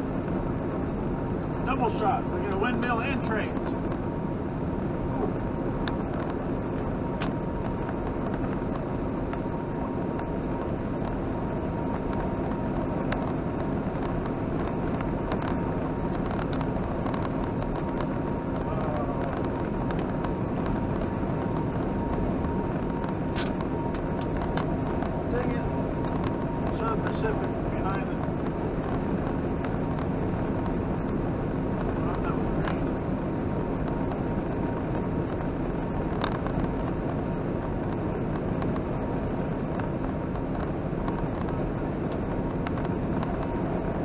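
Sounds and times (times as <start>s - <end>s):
faint steady whine: 0.0s - 44.0s
truck engine and road noise: 0.0s - 44.0s.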